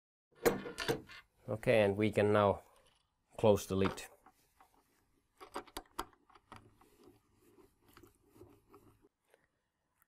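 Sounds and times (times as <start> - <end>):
faint scraping and ticking: 1.2 - 9.6.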